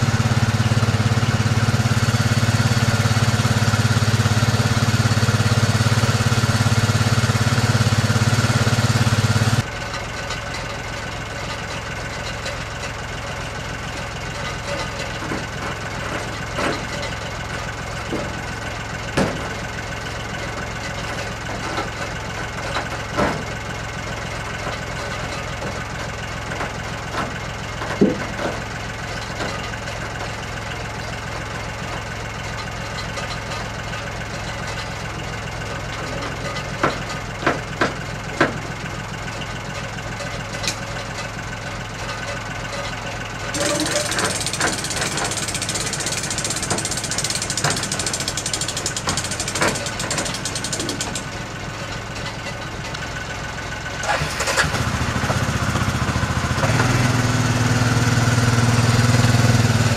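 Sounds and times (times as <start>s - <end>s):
tractor engine idling: 0.0s - 59.9s
light metallic knocks and clanks: 24.5s - 30.4s, 31.9s - 53.1s.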